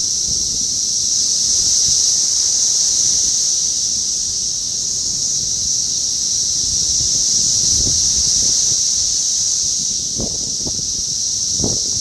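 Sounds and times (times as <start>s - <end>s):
cicadas droning: 0.0s - 12.0s
wind rumble on microphone: 5.6s - 12.0s.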